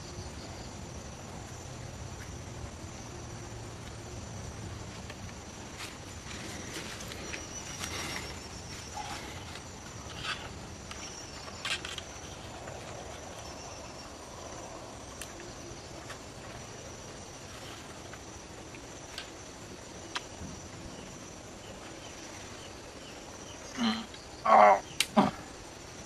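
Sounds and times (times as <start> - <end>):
high insect drone: 0.0 - 26.0
sharp clicks and rustles: 6.7 - 13.2.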